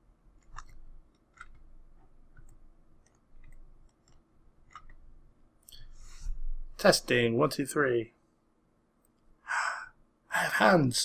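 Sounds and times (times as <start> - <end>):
low room hum: 0.0 - 11.0
faint clicks and ticks: 0.3 - 5.9.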